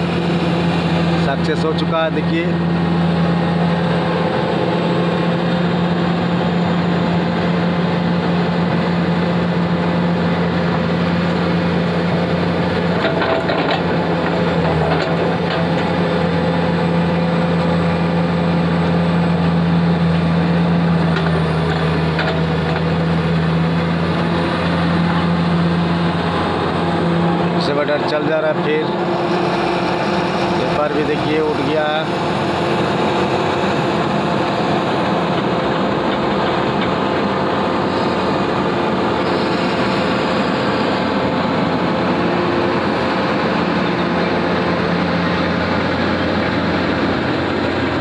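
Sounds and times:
excavator diesel engine humming: 0.0 - 48.0.

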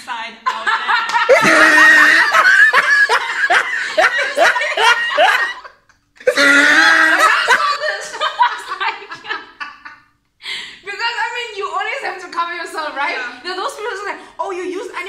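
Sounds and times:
women laughing hard: 0.5 - 10.1.

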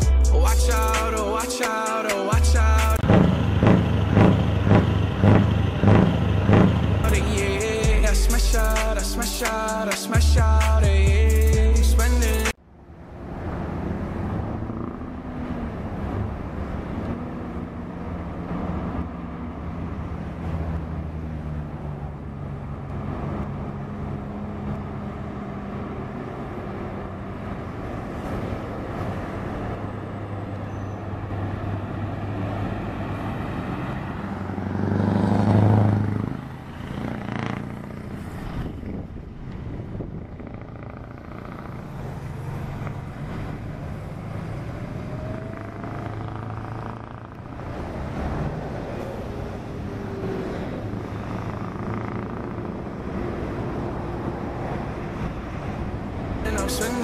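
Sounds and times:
vehicle passing by: 0.0 - 7.9, 12.9 - 57.0
truck engine running: 0.0 - 12.5, 56.5 - 57.0
road traffic: 0.0 - 57.0.

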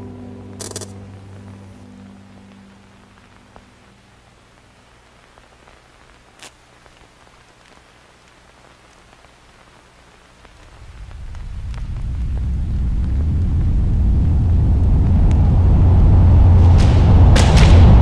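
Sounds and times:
low held musical tone: 0.0 - 4.1, 10.7 - 17.4
faint steady hiss: 0.0 - 18.0.

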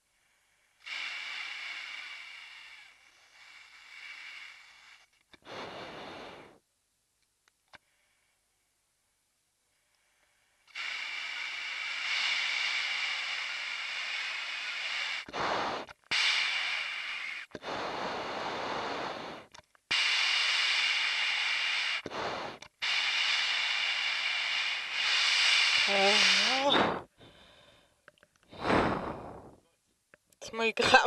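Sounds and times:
breathing through oxygen mask: 0.0 - 6.6, 9.7 - 29.6
steady whistling tone: 22.8 - 27.1.

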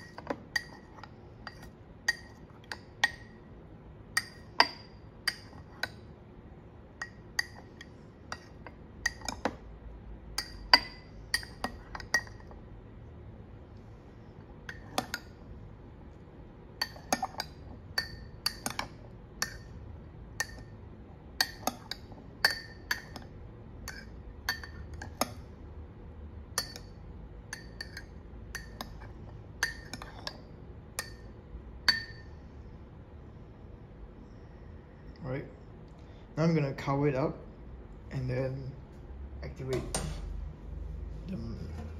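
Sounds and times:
metal spoon clinking ceramic cups: 0.0 - 3.4, 7.0 - 9.6, 10.3 - 12.5, 16.8 - 19.8, 20.4 - 20.8, 21.4 - 25.5, 26.6 - 32.3.

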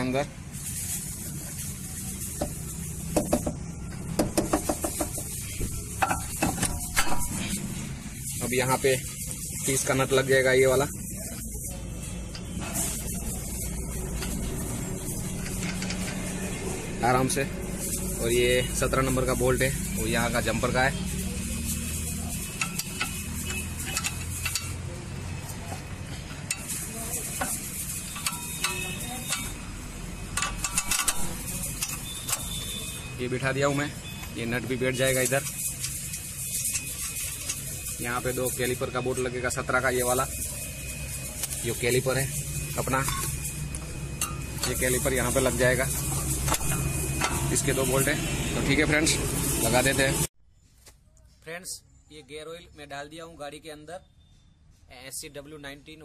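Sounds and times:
metal tools and bolt clinking: 2.2 - 11.5, 12.3 - 16.4, 21.9 - 48.1
sharp metallic clicks and clinks: 22.0 - 25.0, 30.2 - 33.0.

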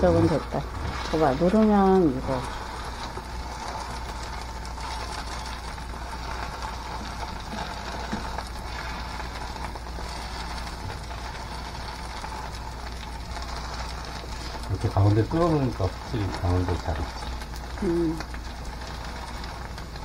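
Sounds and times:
constant low hum: 0.0 - 20.0
pancake sizzling in oil: 0.0 - 20.0.

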